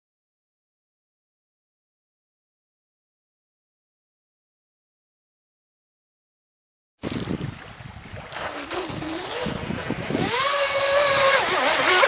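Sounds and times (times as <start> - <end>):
water noise: 7.0 - 12.0
wind: 7.0 - 12.0
electric motor whining: 8.6 - 12.0.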